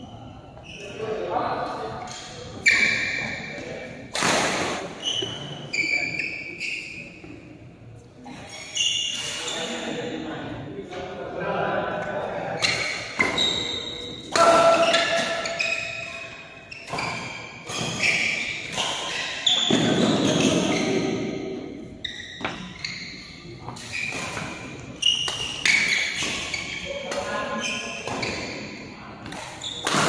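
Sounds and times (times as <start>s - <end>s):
shoes squeaking on court: 2.0s - 3.6s, 4.6s - 7.5s, 8.3s - 9.8s, 12.6s - 30.0s.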